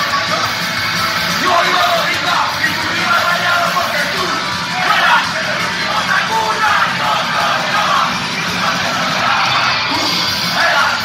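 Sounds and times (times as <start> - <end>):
punk rock band playing: 0.0 - 11.0
singer shouting into microphone: 1.3 - 11.0.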